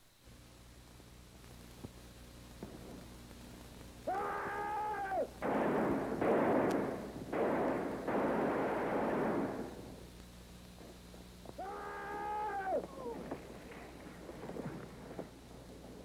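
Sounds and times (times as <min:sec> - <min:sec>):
long high cry: 0:04.1 - 0:05.4, 0:11.6 - 0:13.4
loud blasts with rushing tail: 0:05.4 - 0:10.1.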